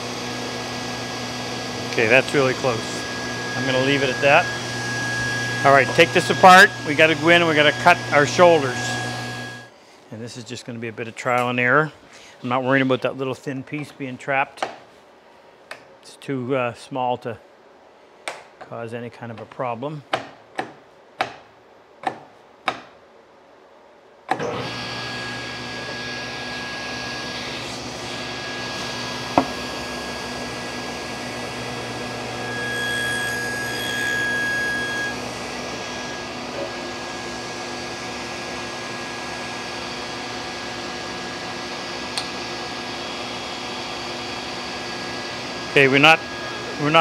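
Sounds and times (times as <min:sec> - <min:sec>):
table saw running: 0:00.0 - 0:09.7, 0:24.4 - 0:47.0
saw blade cutting wood: 0:31.9 - 0:37.0.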